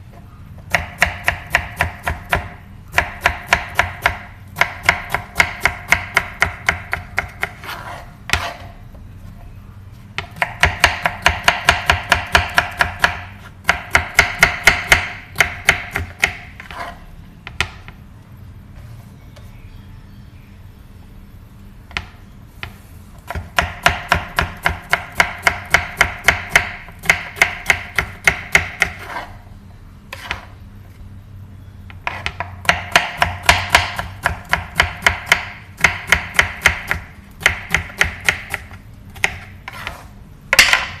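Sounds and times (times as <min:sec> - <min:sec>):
knife chopping on wooden board: 0:00.7 - 0:08.7, 0:10.2 - 0:17.8, 0:23.3 - 0:29.3, 0:32.0 - 0:41.0.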